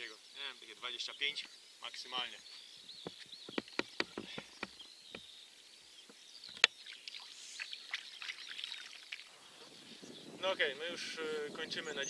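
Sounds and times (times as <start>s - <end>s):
birds chirping: 0.0s - 12.0s
footsteps on concrete: 3.0s - 5.3s.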